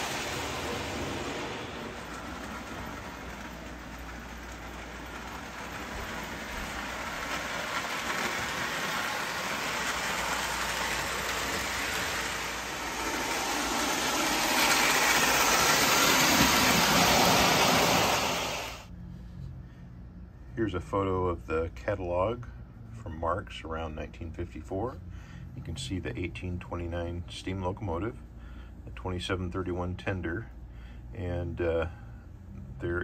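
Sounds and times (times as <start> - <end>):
metal wheels clattering on rails: 0.0 - 18.4
toy train motor whirring: 2.0 - 18.9.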